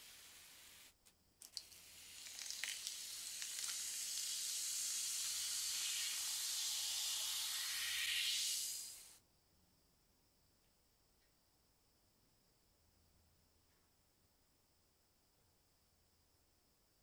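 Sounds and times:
cola pouring and fizzing: 0.0s - 9.1s.

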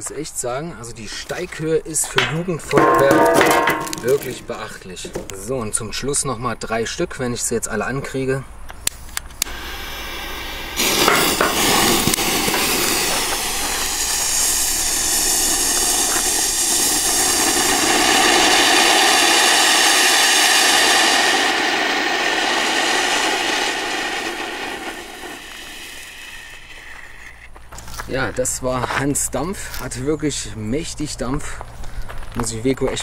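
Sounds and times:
firework fountains hissing: 2.2s - 4.6s, 9.0s - 28.0s.

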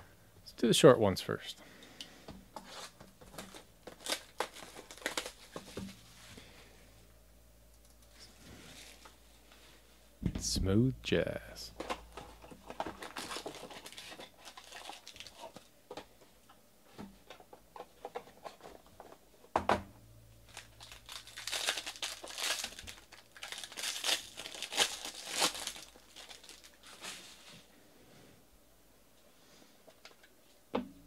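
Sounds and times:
card pack wrappers tearing: 2.7s - 5.8s, 11.8s - 15.7s, 20.5s - 27.5s
wrapper crinkling: 2.7s - 6.1s, 11.7s - 15.7s, 20.4s - 27.7s
sharp thump: 10.2s - 10.6s.

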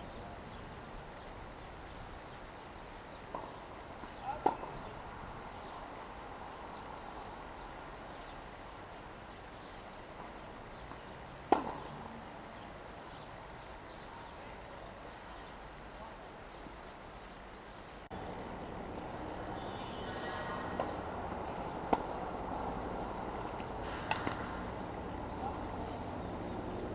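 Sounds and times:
outdoor background noise: 0.0s - 26.9s
tennis racket striking ball: 21.8s - 22.2s.

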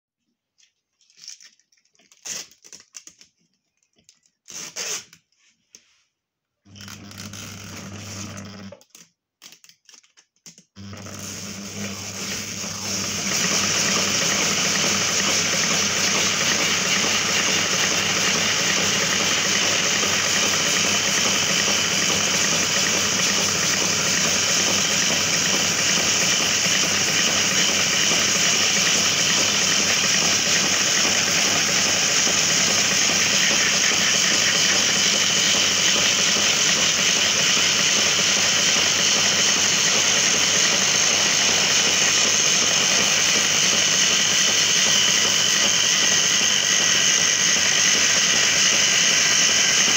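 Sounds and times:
ring-winding machine humming and whirring: 10.8s - 49.9s.

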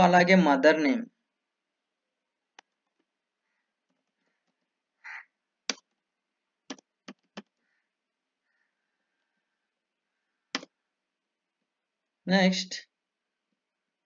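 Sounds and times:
keyboard key clicks: 6.7s - 7.6s, 10.5s - 10.7s.

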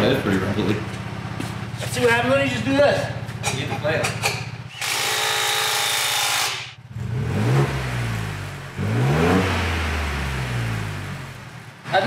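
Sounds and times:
power tool whirring: 4.2s - 6.8s
car engine revving: 6.6s - 12.0s.

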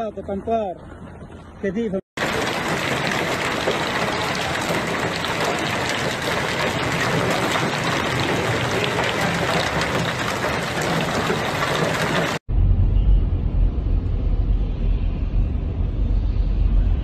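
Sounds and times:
heavy hail and rain: 2.2s - 12.4s.

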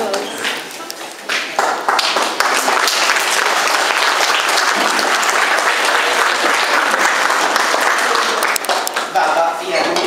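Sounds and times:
audience applauding: 1.2s - 9.4s.

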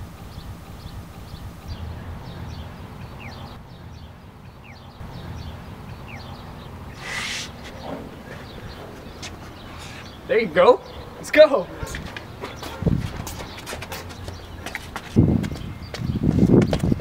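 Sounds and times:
low wind rumble on microphone: 0.0s - 7.0s, 10.9s - 17.0s
short hiss: 7.0s - 7.6s.

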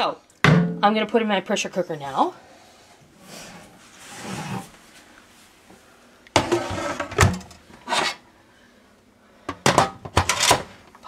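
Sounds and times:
metal pot clunking into base: 0.4s - 0.8s
pot knocking and scraping: 6.4s - 8.2s.

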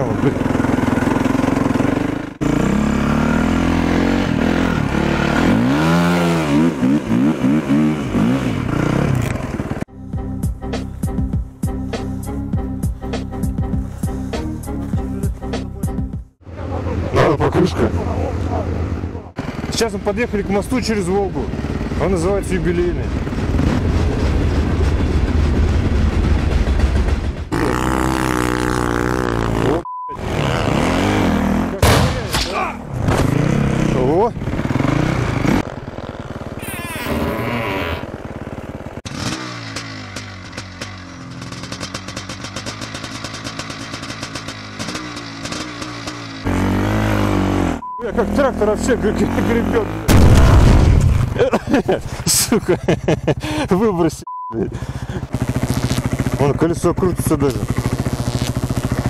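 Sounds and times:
snow bike engine revving: 0.0s - 9.9s, 18.8s - 31.8s, 32.9s - 50.1s, 51.0s - 59.0s
wind rumble: 21.5s - 27.6s
short electronic beep: 29.8s - 30.3s, 47.8s - 48.2s, 54.2s - 54.6s.

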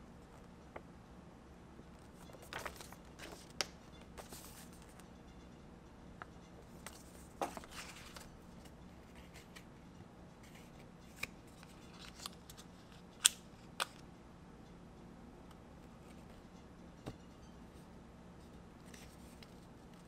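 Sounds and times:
paper leaflet rustling: 2.2s - 5.0s, 6.8s - 8.3s.

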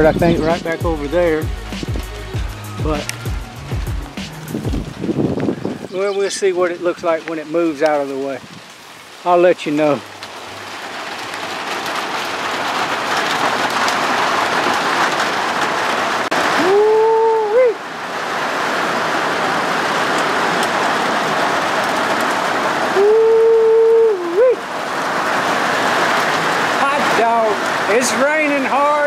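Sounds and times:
heavy rain falling: 0.0s - 29.0s.

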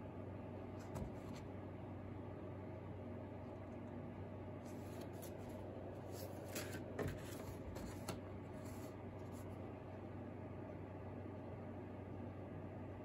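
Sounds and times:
low steady hum: 0.0s - 13.0s
paper rustling and sliding: 4.6s - 9.5s.

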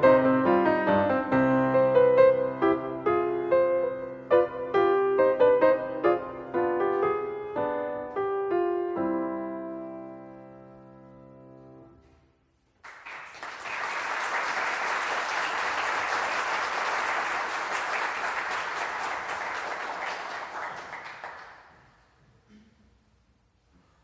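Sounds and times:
audience applauding: 12.8s - 22.0s.

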